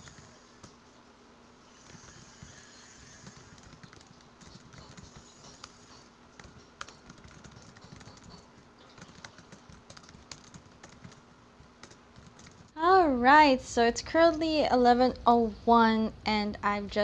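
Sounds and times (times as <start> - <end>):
fast typing on laptop keyboard: 0.0 - 0.8, 1.8 - 12.8.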